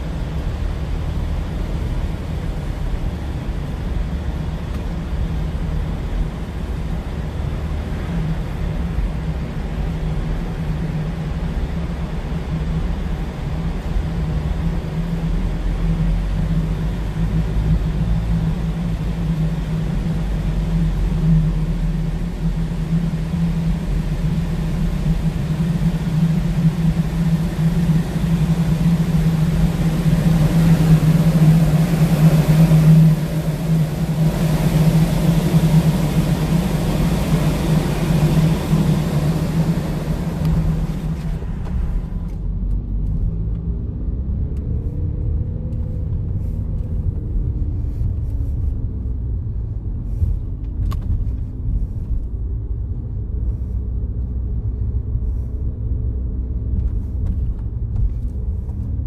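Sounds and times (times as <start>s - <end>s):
ventilation hiss: 0.0s - 42.3s
car engine and tyres: 0.0s - 59.0s
ship machinery drone: 0.0s - 59.0s.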